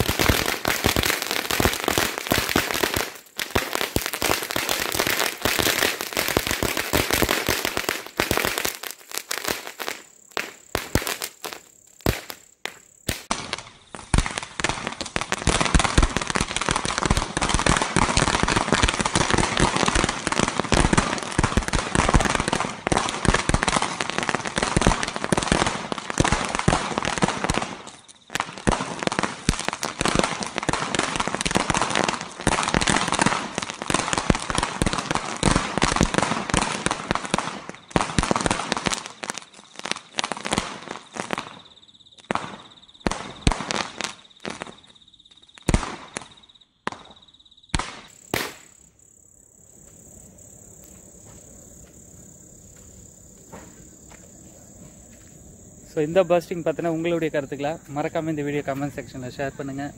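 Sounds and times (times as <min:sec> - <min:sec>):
firecracker string crackling: 0:00.0 - 0:41.5, 0:47.8 - 0:49.1.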